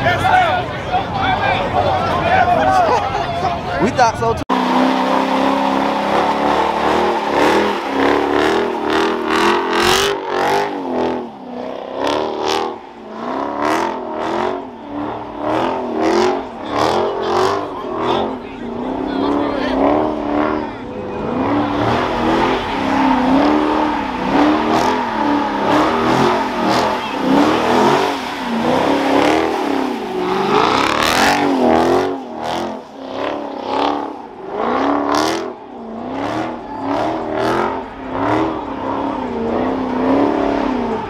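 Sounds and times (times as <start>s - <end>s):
engine revving hard: 4.5s - 41.0s.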